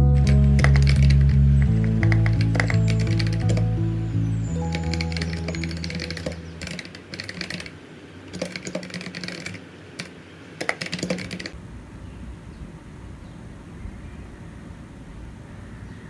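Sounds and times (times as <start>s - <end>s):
computer keyboard key clicks: 8.3s - 11.6s.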